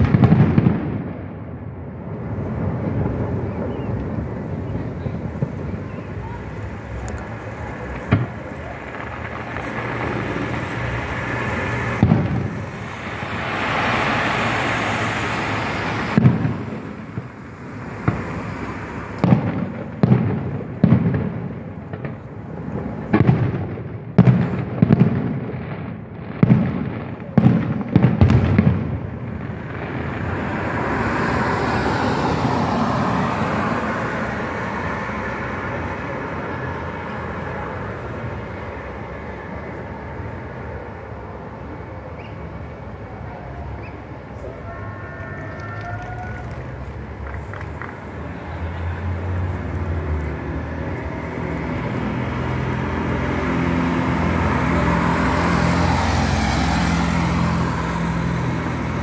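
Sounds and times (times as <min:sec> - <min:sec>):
fireworks bursting: 0:00.0 - 0:40.8.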